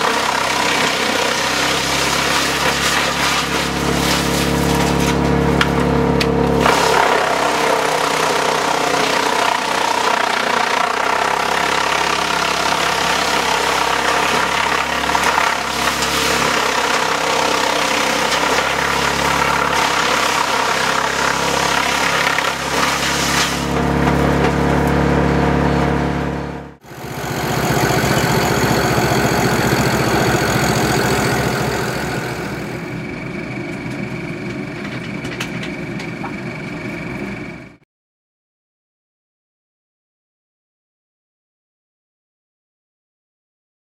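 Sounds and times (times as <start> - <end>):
wood chipper chipping wood: 0.0 - 37.5
machine with fast even pulsing: 23.6 - 37.7.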